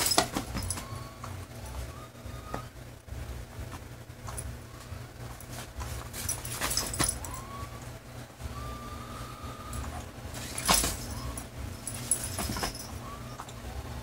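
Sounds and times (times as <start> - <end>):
motorised toy humming: 0.0 - 2.8, 5.9 - 14.0.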